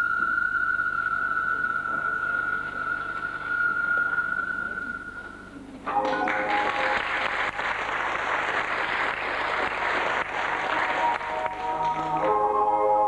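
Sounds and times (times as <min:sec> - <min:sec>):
backing music: 0:05.9 - 0:07.8, 0:09.0 - 0:13.0
audience applauding: 0:05.9 - 0:12.7.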